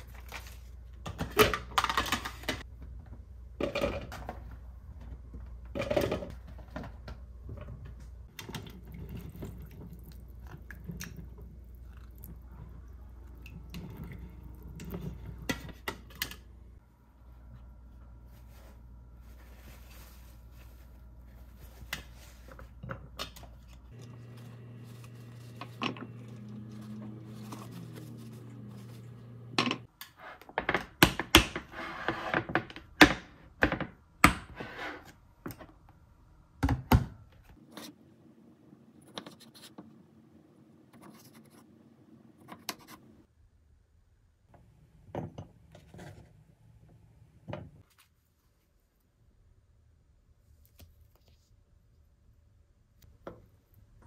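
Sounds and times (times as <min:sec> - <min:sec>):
paper towel rustling: 0:17.2 - 0:22.8, 0:23.8 - 0:29.4.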